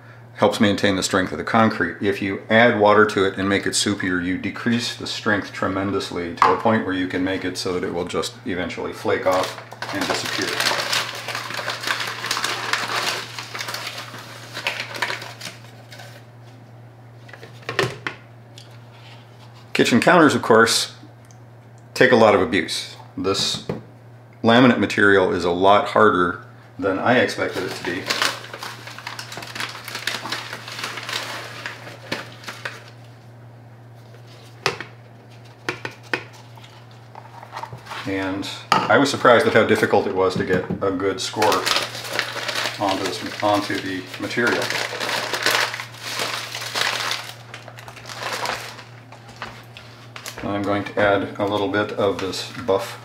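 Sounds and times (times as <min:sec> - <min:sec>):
low steady hum: 0:00.0 - 0:53.0
paper sack rustling: 0:09.1 - 0:16.2, 0:27.4 - 0:33.0, 0:41.2 - 0:50.8
cup knocking on plastic bucket: 0:40.4 - 0:40.8.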